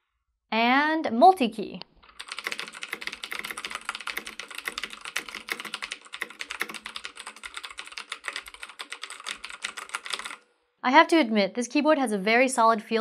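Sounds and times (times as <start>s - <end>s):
clicky mechanical keyboard typing: 2.0s - 10.4s.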